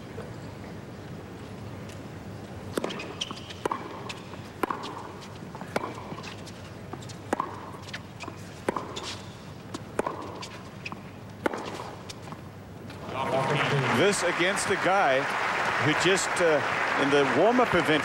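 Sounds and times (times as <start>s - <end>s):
tennis ball struck by rackets: 2.7s - 12.4s.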